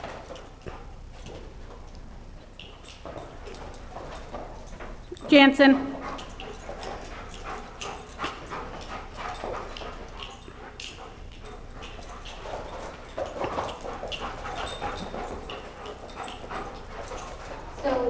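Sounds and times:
paws scrabbling on floor: 0.0 - 18.0
dogs whining and yipping: 11.5 - 18.0.

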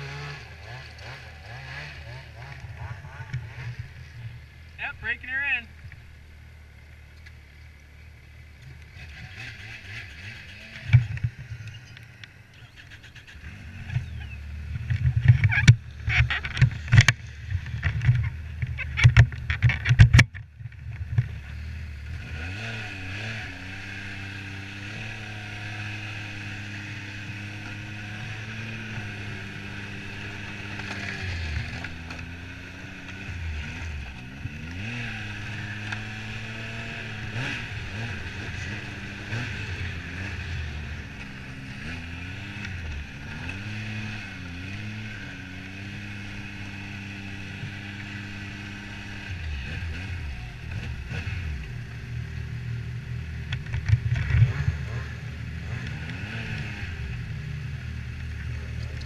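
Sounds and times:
snowmobile engine: 0.0 - 7.1, 7.8 - 59.0.

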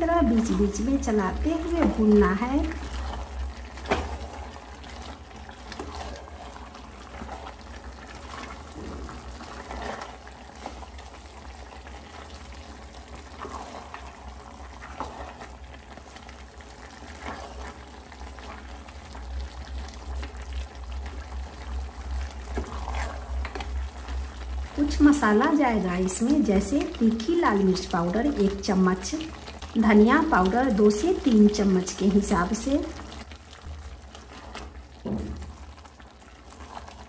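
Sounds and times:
meat and onions sizzling: 0.0 - 37.0
wooden spatula scraping pot: 0.2 - 19.2, 22.0 - 27.9, 32.3 - 35.6, 36.2 - 37.0.

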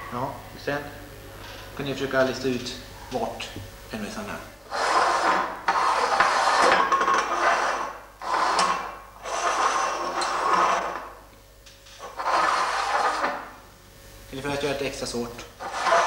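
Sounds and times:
tin cans scraping across table: 4.6 - 11.2, 11.9 - 13.6, 15.4 - 16.0.

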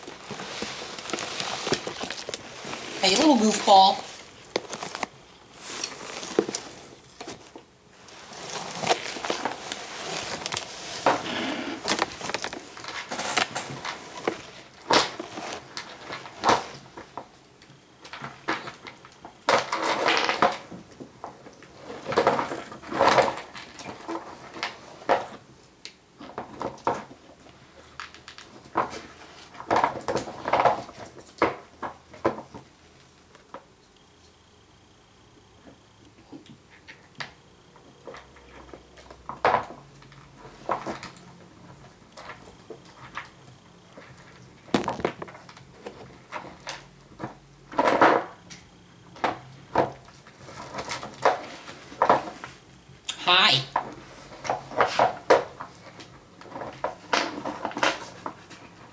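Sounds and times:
rustling scraping and knocks: 0.0 - 17.3, 18.1 - 25.5, 26.2 - 32.7, 44.0 - 48.4, 49.2 - 52.7, 53.7 - 58.9.

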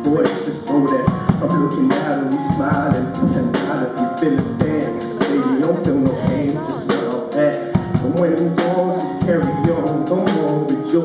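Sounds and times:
boy singing into microphone: 0.0 - 11.0
drum kit cymbal beat: 0.0 - 11.0.

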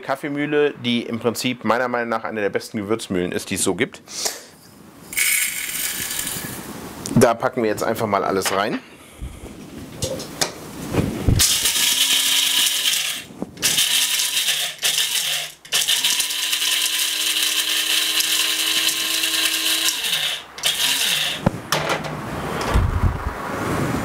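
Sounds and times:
spices rattling against blade: 5.1 - 6.6
electric coffee grinder grinding spices: 5.2 - 6.6, 11.4 - 21.4.

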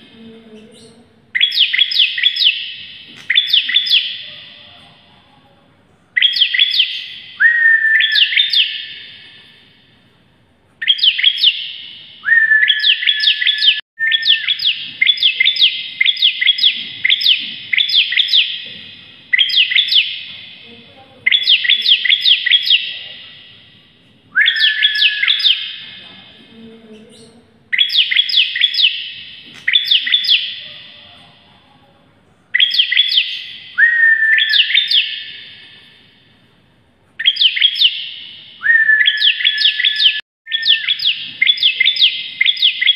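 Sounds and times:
bird singing sharp notes: 0.6 - 4.7, 6.2 - 9.6, 10.8 - 20.6, 21.2 - 23.4, 24.3 - 26.1, 32.6 - 36.0, 37.2 - 42.9.

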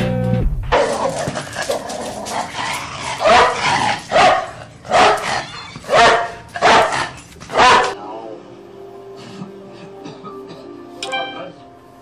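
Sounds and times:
dog barking: 3.2 - 8.0.

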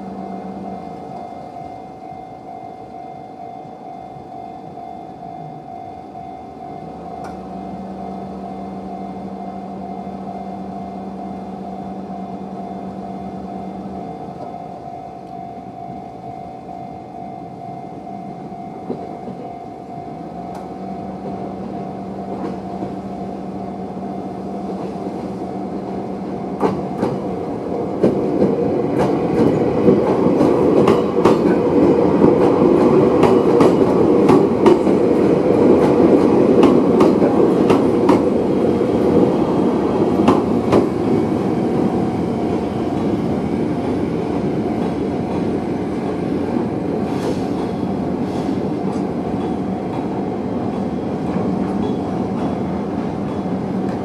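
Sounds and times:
train rumble: 0.0 - 54.0
level crossing bell ringing: 0.3 - 22.1
train wheels clicking over joints: 26.2 - 54.0.

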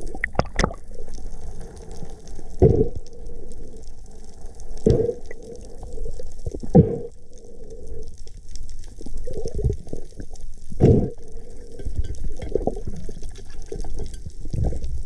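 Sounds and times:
muffled underwater water noise: 0.0 - 15.0.

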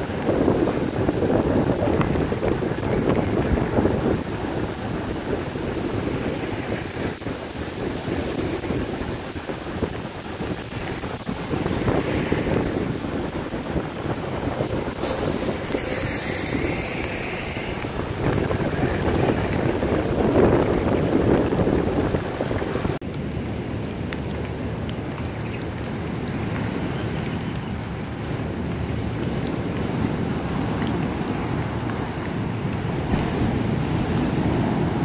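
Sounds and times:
road traffic on wet road: 0.0 - 35.0
wind buffeting microphone: 0.0 - 35.0
high hiss: 15.0 - 18.0.

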